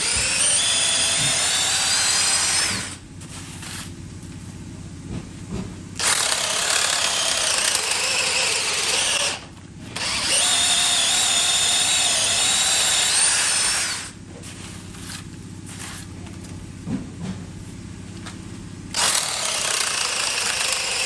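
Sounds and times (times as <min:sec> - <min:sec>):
drill motor whining into wood: 0:00.0 - 0:03.0, 0:06.0 - 0:14.2, 0:18.9 - 0:21.0.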